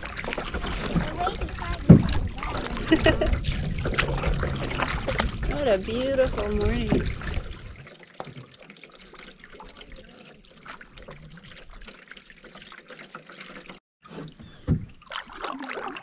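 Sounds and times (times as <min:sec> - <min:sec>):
water dripping off paddle: 0:00.0 - 0:13.8.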